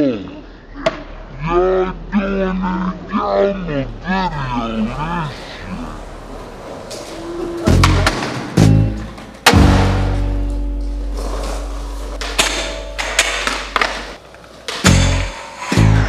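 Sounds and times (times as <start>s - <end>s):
deep bass note: 7.6s - 11.0s
sharp drum-like hits: 9.4s - 10.4s.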